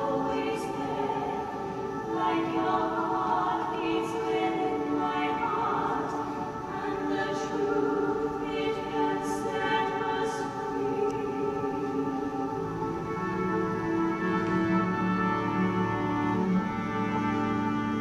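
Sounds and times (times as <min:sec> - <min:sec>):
cast singing in harmony: 0:00.0 - 0:18.0
musical accompaniment: 0:00.0 - 0:18.0.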